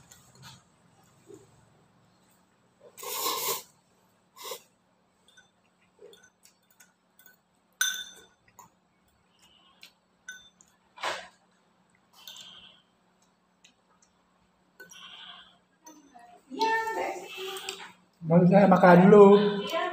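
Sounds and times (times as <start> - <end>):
noodle slurping: 2.9 - 3.8
spoon clinking against bowl: 5.2 - 8.8, 10.2 - 10.8, 12.2 - 12.6, 14.8 - 15.1.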